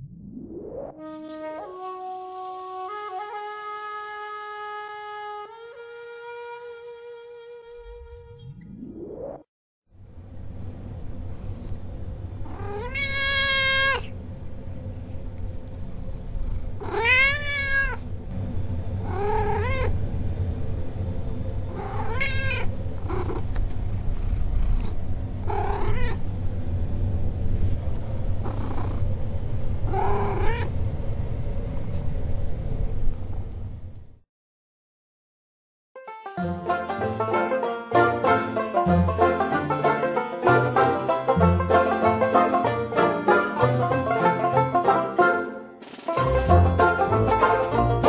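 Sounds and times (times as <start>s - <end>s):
low background hum: 10.0s - 34.2s
cat meowing: 12.4s - 14.2s, 16.8s - 18.0s, 19.0s - 20.0s, 21.7s - 23.5s, 24.8s - 26.2s, 29.8s - 30.8s.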